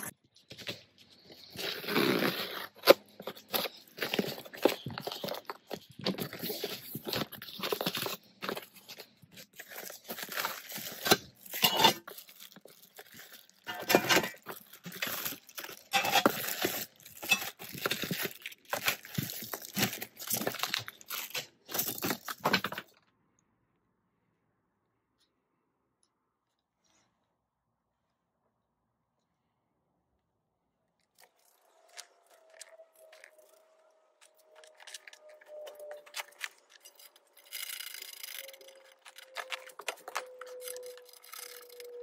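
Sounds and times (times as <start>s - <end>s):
cardboard scraping and tearing: 0.0s - 22.8s.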